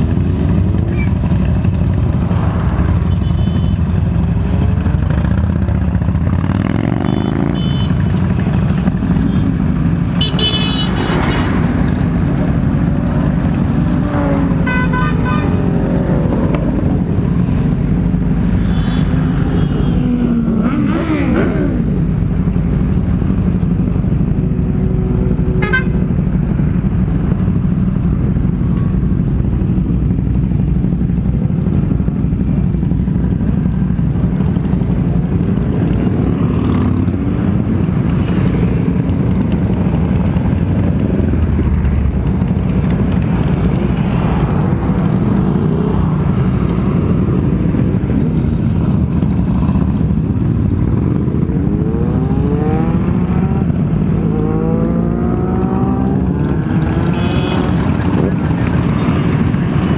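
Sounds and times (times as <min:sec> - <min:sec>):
motorcycle engine: 0:00.0 - 0:59.9
horn toot: 0:14.6 - 0:15.7, 0:56.9 - 0:58.0.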